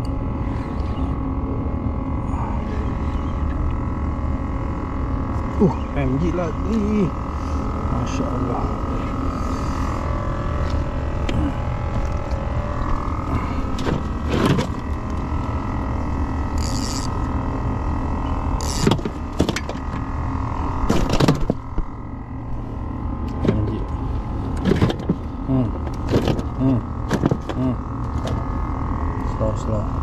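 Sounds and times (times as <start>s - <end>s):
boat engine drone: 0.0s - 30.0s
gear knocking and clattering: 25.8s - 28.4s.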